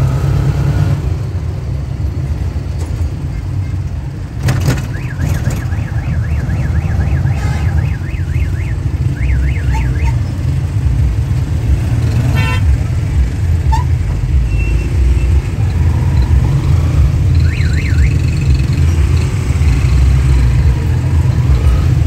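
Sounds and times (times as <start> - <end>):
road vehicle rumble: 0.0 - 22.0
warbling electronic alarm: 4.8 - 10.2, 15.6 - 18.9.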